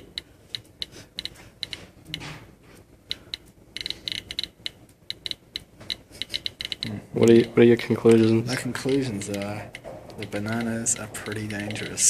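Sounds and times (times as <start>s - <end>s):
geiger counter clicking: 0.0s - 2.3s, 3.0s - 12.0s.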